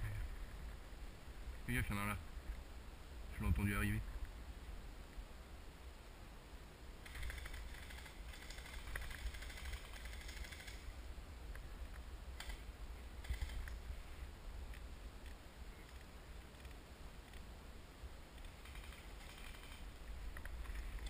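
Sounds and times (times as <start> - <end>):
faint low rumble: 0.0 - 21.0
small clicks: 7.0 - 10.8, 11.5 - 12.6, 13.2 - 13.8, 18.3 - 21.0
crackling rustle: 7.0 - 21.0.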